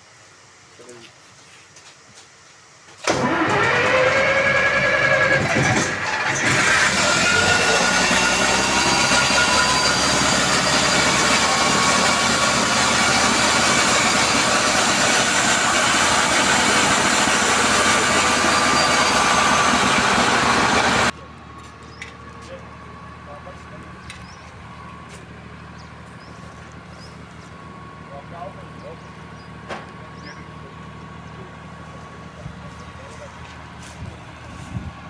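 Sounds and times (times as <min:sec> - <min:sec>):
generator engine running: 0:03.0 - 0:35.0.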